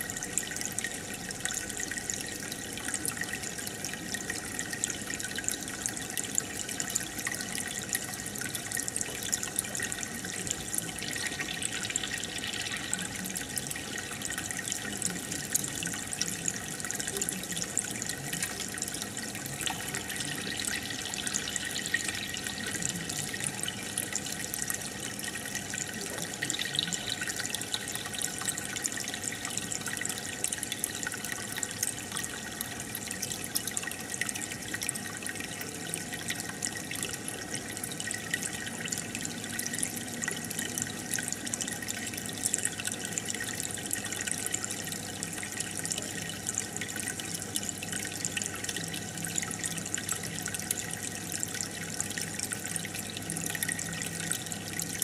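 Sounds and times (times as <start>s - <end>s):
aquarium water trickling: 0.0s - 55.0s
small bubbles crackling: 9.3s - 29.8s.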